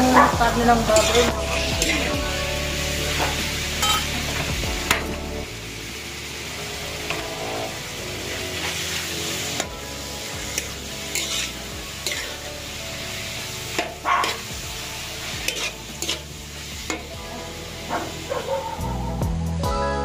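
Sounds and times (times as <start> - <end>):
meat sizzling in oil: 0.0 - 19.0
utensil scraping a pan: 0.9 - 2.2, 10.4 - 12.4, 13.7 - 18.4.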